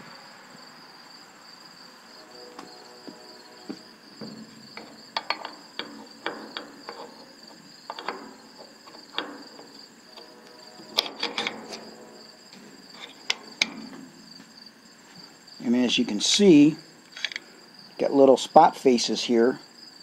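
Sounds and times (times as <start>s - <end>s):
metal parts clicking and knocking: 4.2s - 14.1s, 17.1s - 17.5s.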